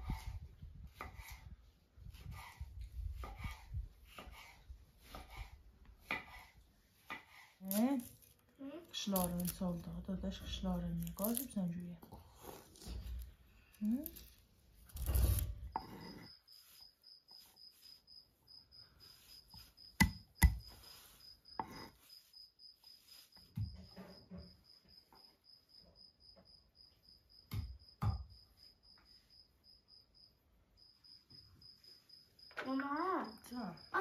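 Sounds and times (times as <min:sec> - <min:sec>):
cricket chirping: 0:13.1 - 0:34.0.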